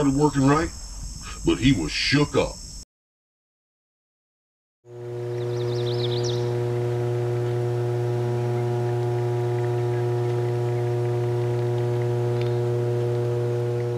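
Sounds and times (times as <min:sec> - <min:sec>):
transformer humming: 0:04.9 - 0:13.9.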